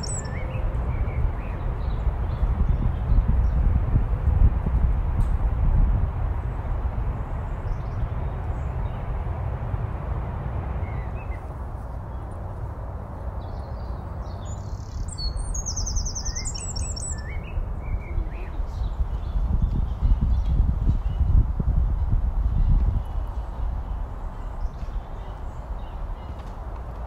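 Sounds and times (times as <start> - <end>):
songbird singing: 0.0 - 3.7, 10.8 - 12.6, 13.2 - 21.4, 22.5 - 27.0.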